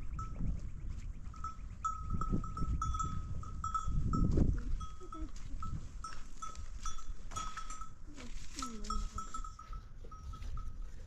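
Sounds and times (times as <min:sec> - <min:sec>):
animal bells clinking: 0:00.0 - 0:11.0.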